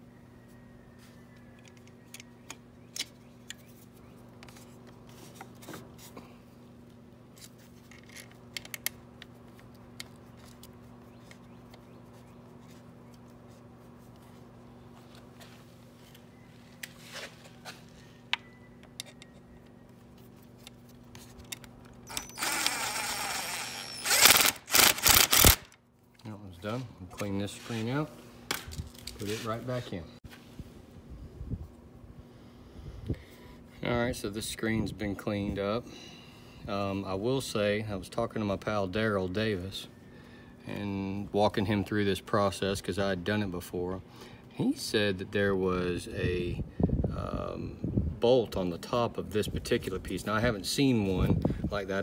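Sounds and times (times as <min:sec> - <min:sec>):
steady low hum: 0:00.0 - 0:52.0
socket wrench ratcheting: 0:21.6 - 0:25.8.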